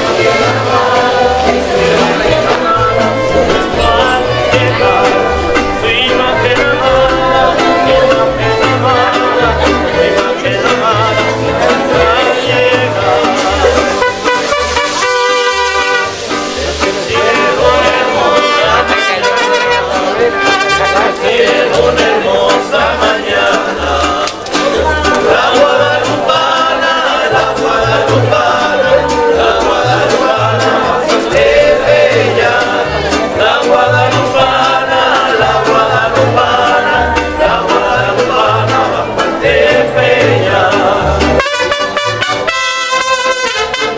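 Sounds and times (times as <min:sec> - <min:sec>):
pulsing bass beat: 0:00.0 - 0:20.6
person singing: 0:00.0 - 0:43.9.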